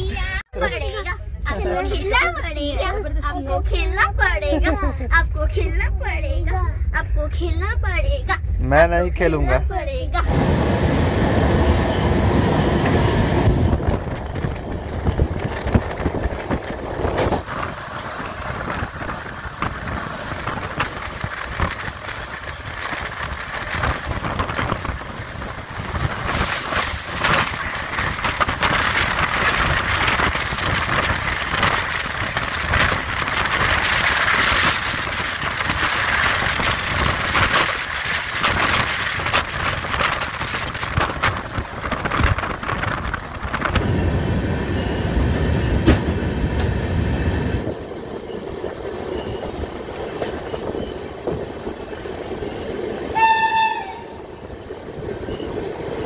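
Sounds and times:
train wheels clattering on rails: 11.3s - 56.0s.

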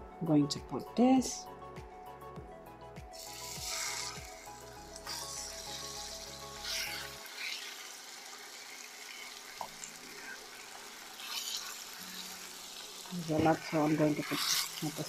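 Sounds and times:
chicken sizzling in hot oil: 3.2s - 15.0s
wooden spoon scraping: 6.6s - 7.8s.

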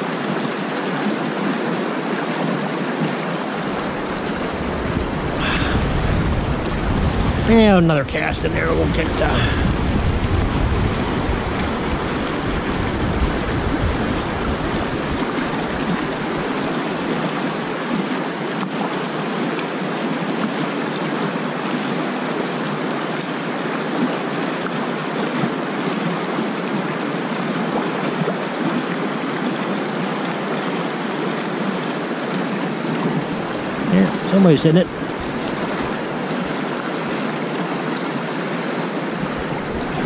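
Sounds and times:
water rushing over spillway: 0.0s - 40.0s
low rumble: 3.8s - 7.8s.

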